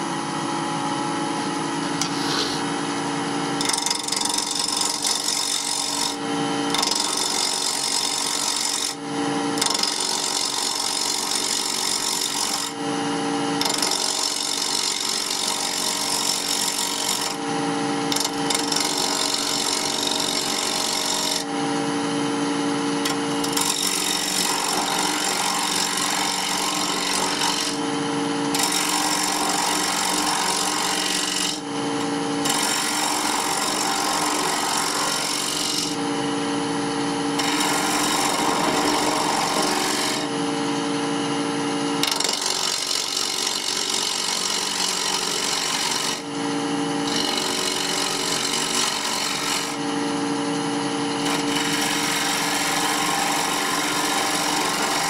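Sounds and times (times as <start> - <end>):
chisel scraping wood: 2.0 - 2.7, 23.0 - 27.8, 37.4 - 40.3, 51.2 - 55.0
lathe motor hum: 47.1 - 55.0.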